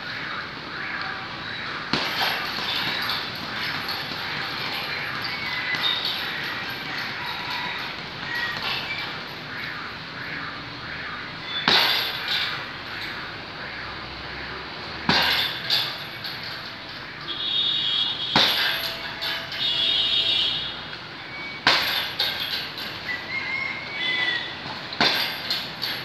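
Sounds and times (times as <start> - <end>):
strikes smacking heavy bag: 1.9 - 5.1.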